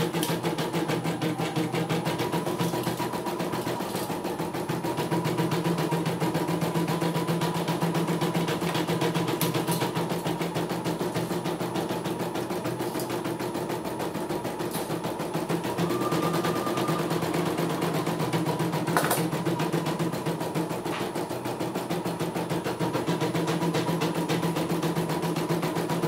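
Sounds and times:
embroidery machine stitching: 0.0 - 26.0
short high tone: 15.8 - 18.1.

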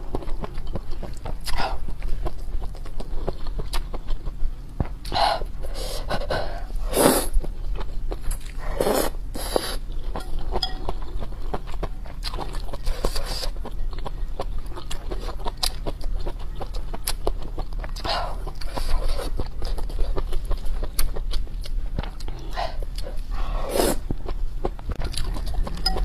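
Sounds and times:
wet chewing: 0.0 - 26.0
person slurping noodles: 23.4 - 24.0.

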